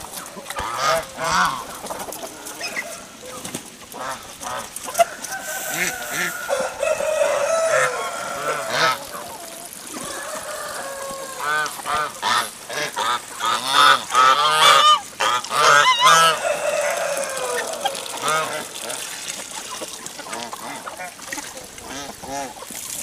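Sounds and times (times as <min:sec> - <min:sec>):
geese honking: 0:00.0 - 0:22.7.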